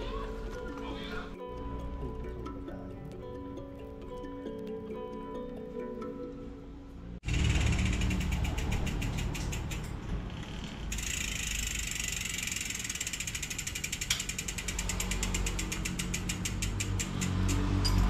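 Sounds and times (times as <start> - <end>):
bike freehub ratcheting clicks: 7.2 - 18.0.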